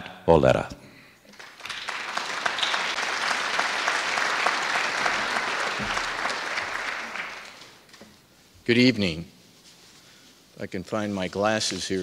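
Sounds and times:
audience applauding: 0:01.3 - 0:07.9.

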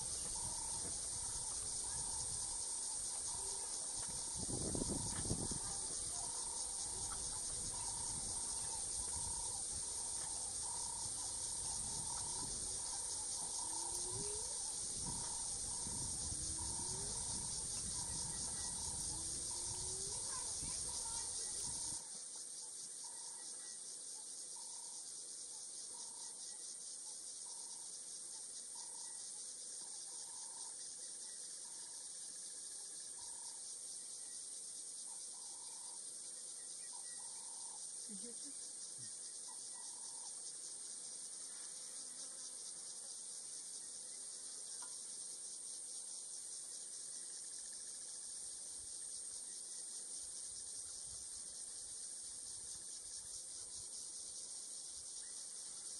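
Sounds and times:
high-pitched insect chorus: 0:00.0 - 0:55.9.

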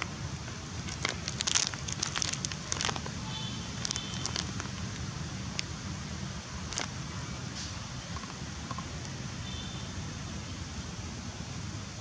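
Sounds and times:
low town rumble: 0:00.0 - 0:12.0
sharp crackling clicks: 0:00.8 - 0:03.2, 0:03.8 - 0:05.7.

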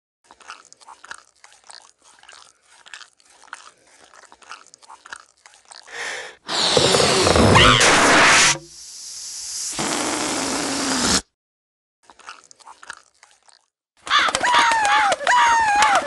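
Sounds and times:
crunchy chewing clicks: 0:00.2 - 0:05.9, 0:12.0 - 0:13.7
breathy blow into balloon: 0:05.9 - 0:11.4.

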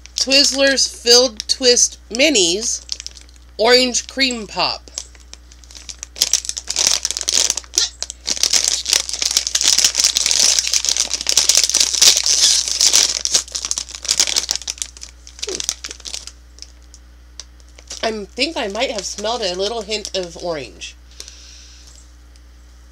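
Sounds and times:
plastic candy bag crinkling: 0:00.0 - 0:01.6, 0:02.2 - 0:21.3
hand rustling in bag: 0:05.1 - 0:16.3.

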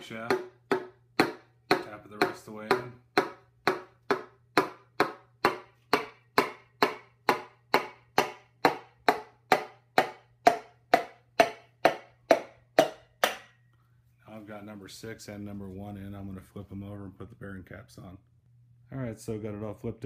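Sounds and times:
hammer handle knocking on piston: 0:00.0 - 0:13.5.

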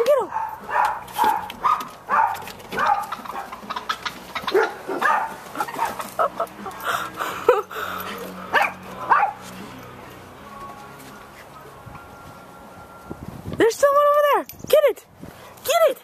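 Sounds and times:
dog barking sharply: 0:00.3 - 0:03.6, 0:04.5 - 0:06.0.

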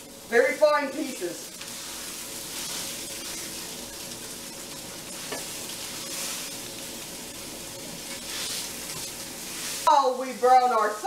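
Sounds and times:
sausage sizzling in a frying pan: 0:00.0 - 0:11.0
utensil stirring and scraping pan: 0:01.4 - 0:10.0.

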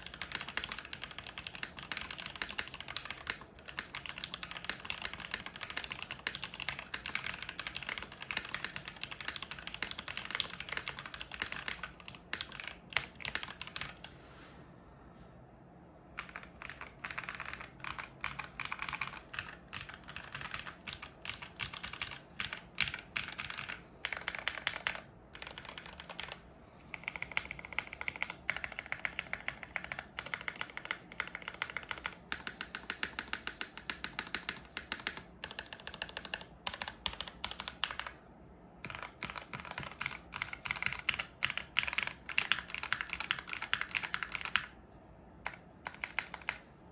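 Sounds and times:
mechanical keyboard typing: 0:00.0 - 0:14.1, 0:16.1 - 0:38.2, 0:38.8 - 0:44.8, 0:45.4 - 0:46.7.

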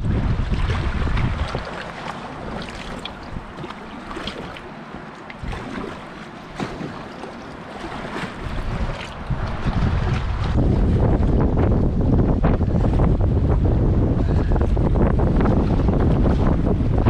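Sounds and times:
wind buffeting microphone: 0:00.0 - 0:04.6, 0:05.4 - 0:17.0
paddle dipping in water: 0:00.0 - 0:13.2
river water rushing and splashing: 0:00.0 - 0:13.6.

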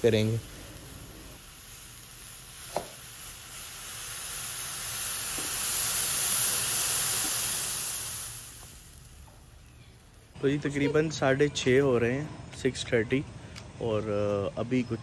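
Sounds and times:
milk boiling in a pot: 0:00.0 - 0:09.5.

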